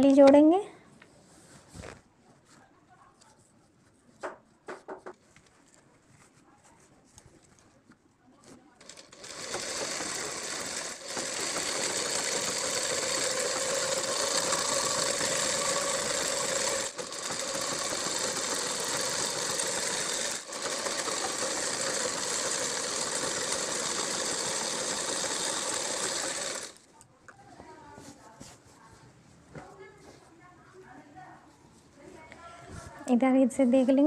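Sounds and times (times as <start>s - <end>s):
sewing machine running: 8.8s - 26.9s.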